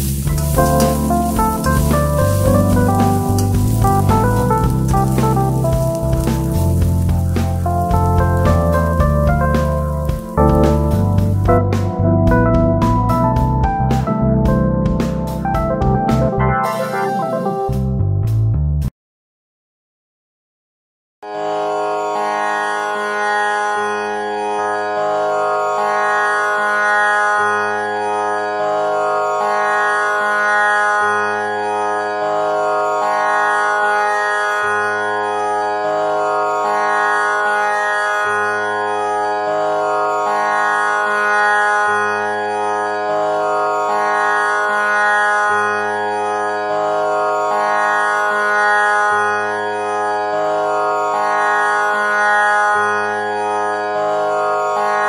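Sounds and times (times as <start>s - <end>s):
slow bass line: 0.0s - 16.6s, 17.5s - 18.9s
drone-like instrumental music: 0.0s - 18.3s.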